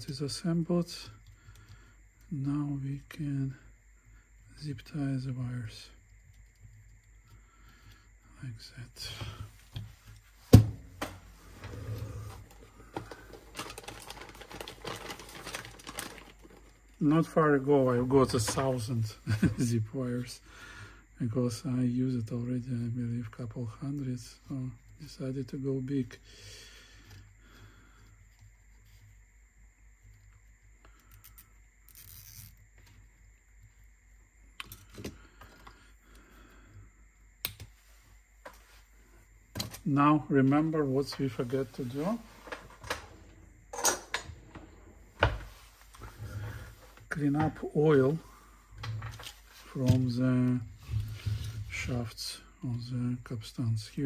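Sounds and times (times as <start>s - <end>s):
low steady hum: 0.0s - 54.0s
zip tie zipping rasp: 31.9s - 32.6s.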